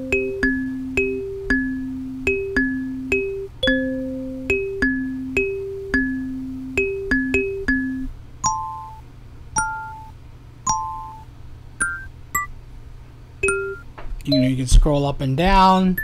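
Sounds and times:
plucked kalimba synth notes: 0.0 - 8.8.

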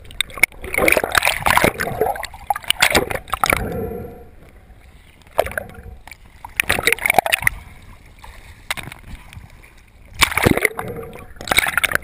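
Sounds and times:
water splashing and gurgling: 0.0 - 12.0.

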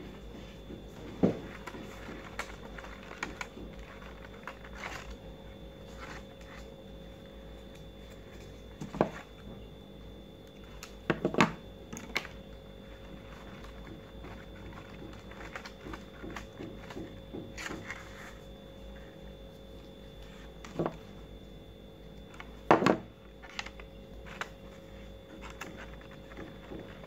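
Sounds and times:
paper taps and rustles: 0.7 - 5.2, 13.1 - 18.4, 22.4 - 27.0.

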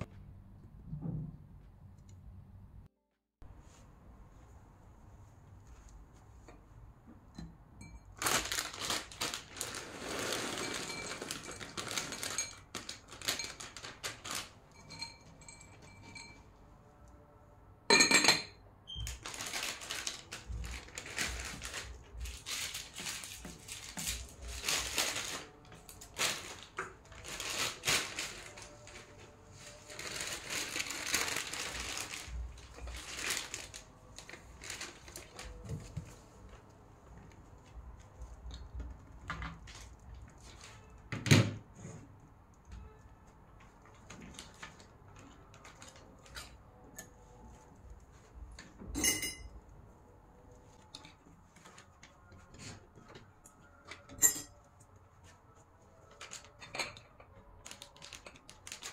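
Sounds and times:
rustling and shuffling of objects: 8.1 - 16.6, 19.0 - 58.9
sharp glass clink: 49.0 - 49.5.

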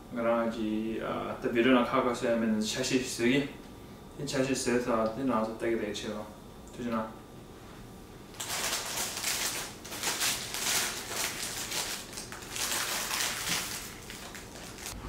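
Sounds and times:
paper wrapper crinkling: 8.3 - 15.0.

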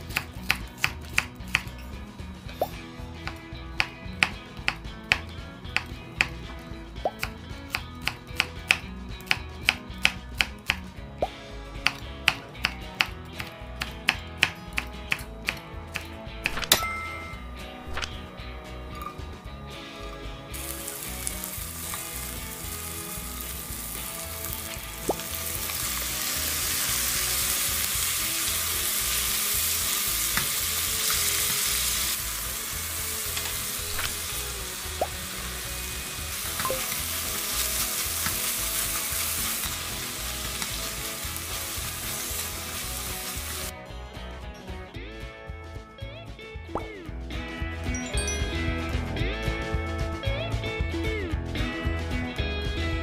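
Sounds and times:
food sizzling in a frying pan: 20.6 - 43.7.

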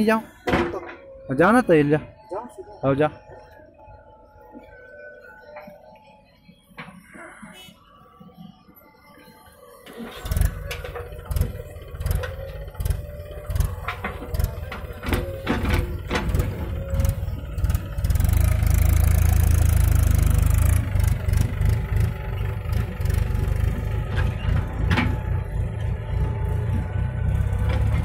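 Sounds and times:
backhoe diesel engine: 0.0 - 28.0
tractor engine revving: 9.7 - 28.0.

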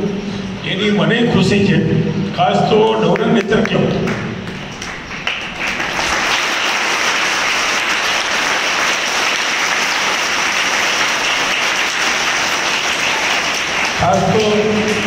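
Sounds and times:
children applauding: 4.1 - 15.0.

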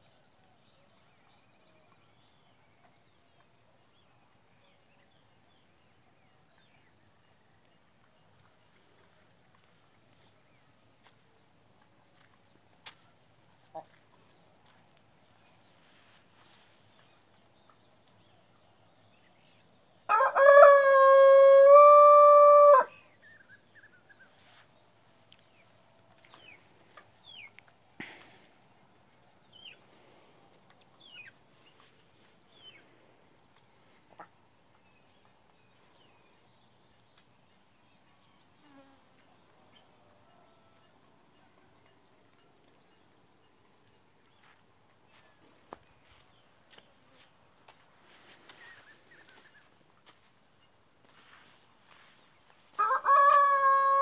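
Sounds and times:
rooster crowing: 20.1 - 23.0, 52.8 - 54.0
small birds chirping: 23.0 - 40.0, 41.4 - 52.7.

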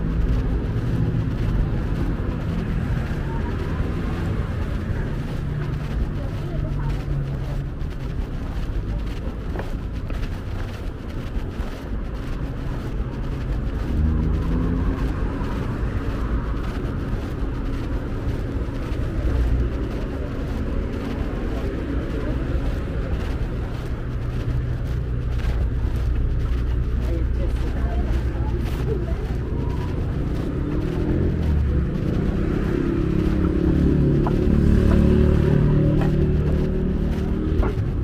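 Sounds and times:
cars driving past: 10.1 - 38.0.

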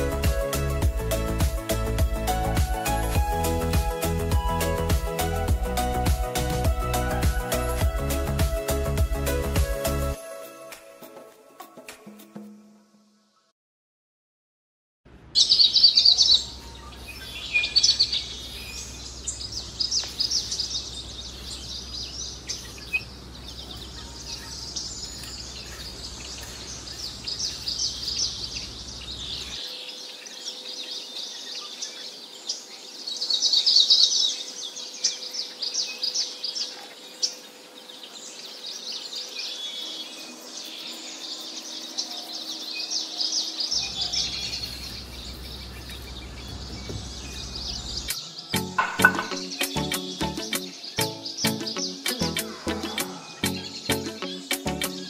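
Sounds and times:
small birds chirping: 15.4 - 55.0.

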